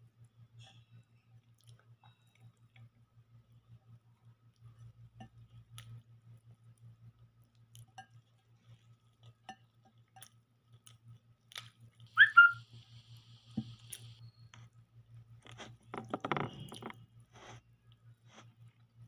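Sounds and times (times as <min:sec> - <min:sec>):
soft chewing: 0:00.0 - 0:12.5, 0:13.5 - 0:19.0
high whistle-like chirp: 0:12.2 - 0:12.7.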